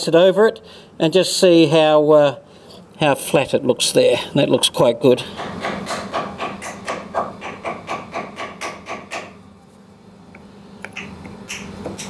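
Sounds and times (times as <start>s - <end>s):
hammer tapping on wood: 5.4s - 9.4s.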